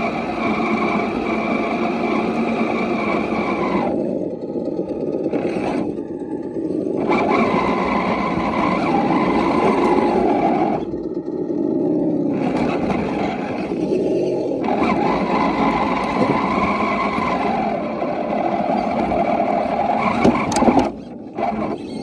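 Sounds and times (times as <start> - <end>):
drivetrain and tyres rumble: 0.0 - 22.0
electric motor whine: 0.0 - 22.0.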